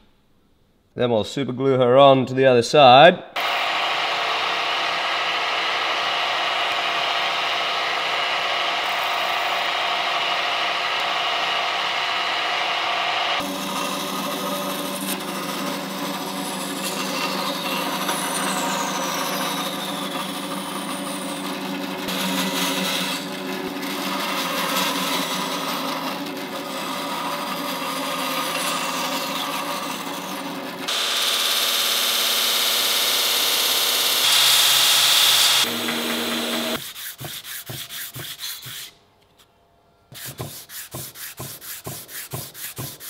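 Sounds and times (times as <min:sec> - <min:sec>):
motor hum: 0:03.4 - 0:36.8
band saw cutting wood: 0:03.4 - 0:39.0, 0:40.1 - 0:43.0
belt grinder sanding wood: 0:03.4 - 0:39.0, 0:40.1 - 0:43.0.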